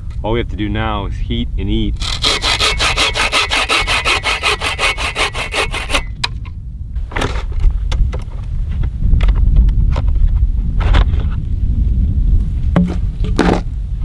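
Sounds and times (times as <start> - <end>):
hand saw cutting log: 2.0 - 6.1.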